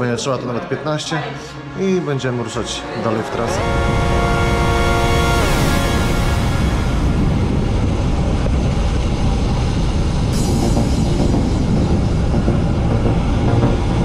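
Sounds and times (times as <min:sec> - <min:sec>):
background music: 0:02.8 - 0:07.8, 0:10.3 - 0:14.0
wind buffeting microphone: 0:03.5 - 0:14.0.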